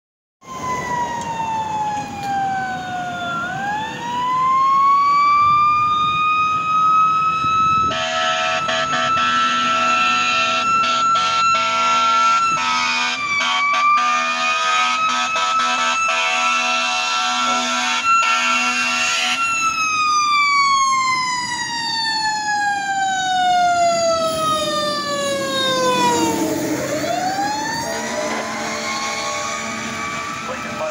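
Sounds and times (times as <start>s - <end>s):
fire engine siren wailing: 0.4s - 30.9s
air horn blaring: 7.8s - 19.6s, 25.8s - 30.9s.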